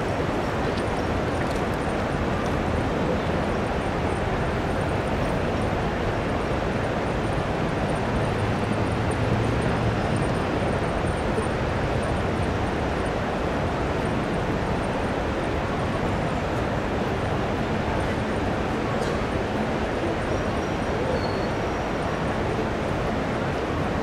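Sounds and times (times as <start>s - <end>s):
road traffic: 7.4s - 14.0s.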